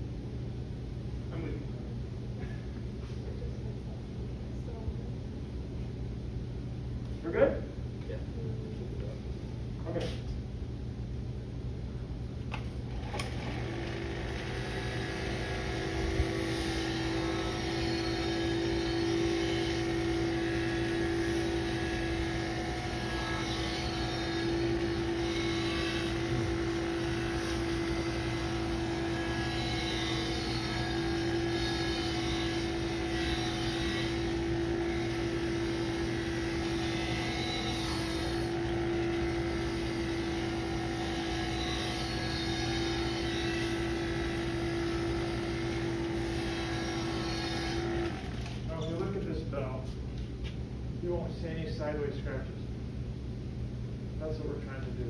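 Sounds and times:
buffing machine motor hum and whine: 12.5s - 49.3s.

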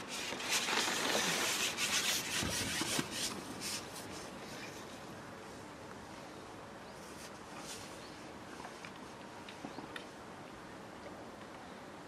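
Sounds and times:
fishing pole rubbing and scraping: 0.0s - 4.9s.

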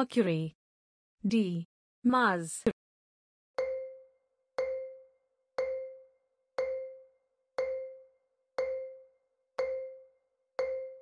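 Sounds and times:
countdown timer ticking: 3.6s - 11.0s.

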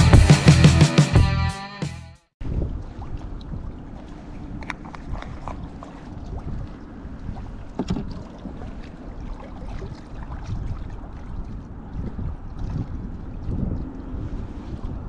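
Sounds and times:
wind noise on microphone: 2.4s - 3.9s, 4.5s - 8.3s, 9.6s - 15.0s.

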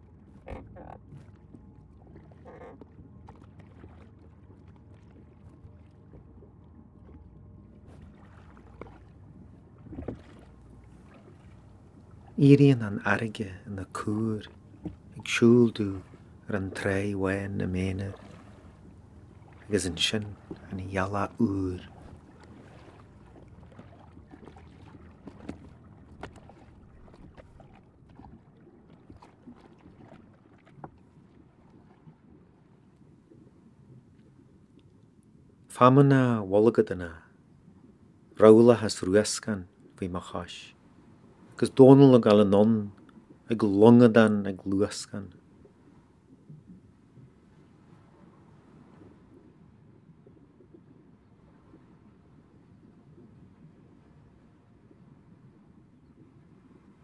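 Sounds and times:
oars dipping through water: 0.0s - 35.8s, 36.6s - 57.0s
water lapping against hull: 0.0s - 57.0s
oars knocking: 8.0s - 12.4s, 13.9s - 28.3s.

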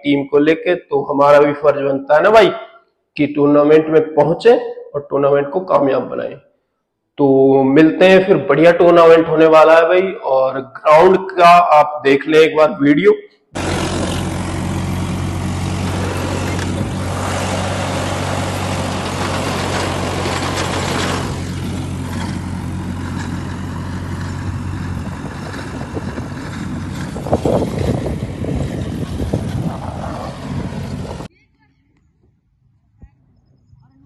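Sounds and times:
tractor engine humming: 13.6s - 31.3s.

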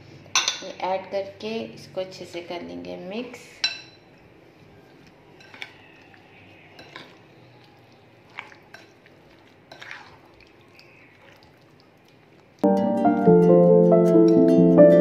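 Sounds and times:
spoon stirring marinade: 3.7s - 12.6s.

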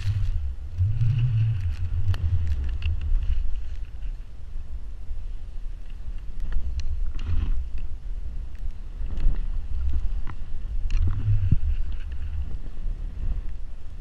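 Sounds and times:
skis swishing through snow: 0.0s - 4.3s
wind buffeting microphone: 0.0s - 14.0s.

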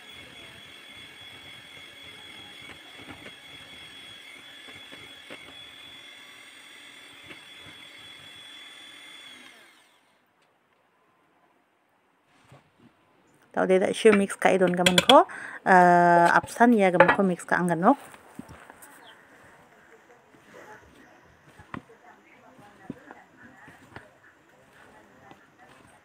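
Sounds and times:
electric hand mixer whining: 0.0s - 10.2s, 17.6s - 26.0s.

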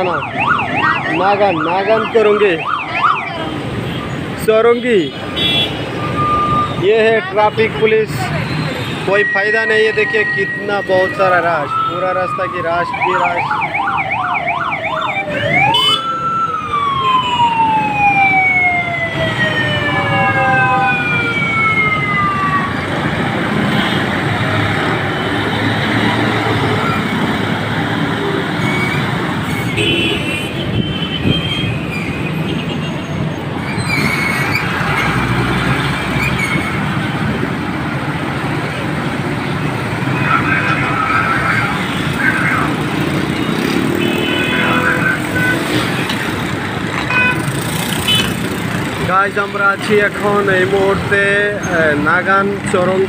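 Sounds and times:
siren warbling: 0.0s - 3.5s, 9.2s - 23.0s
congested road traffic: 0.0s - 53.0s.

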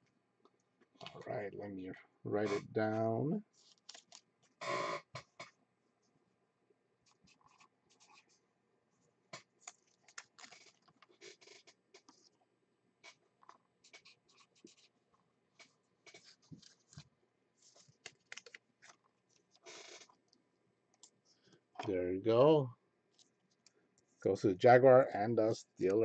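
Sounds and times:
pen scratching on paper: 7.1s - 8.4s, 13.8s - 14.9s.

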